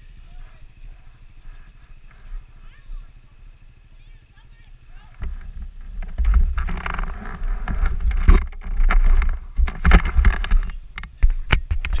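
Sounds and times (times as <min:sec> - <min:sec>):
low rumble: 0:00.0 - 0:11.5.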